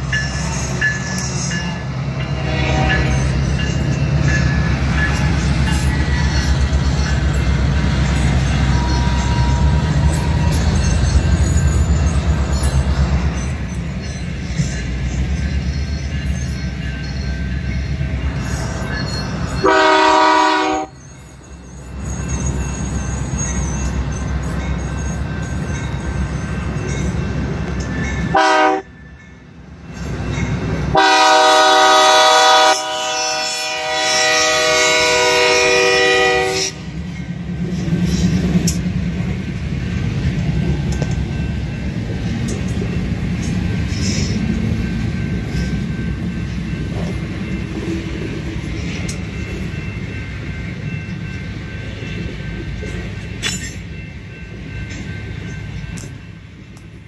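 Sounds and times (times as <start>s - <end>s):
freight train rumbling and clattering: 0.0s - 57.0s
locomotive horn blasts: 2.3s - 3.4s, 19.6s - 21.0s, 28.3s - 28.9s, 30.9s - 36.9s.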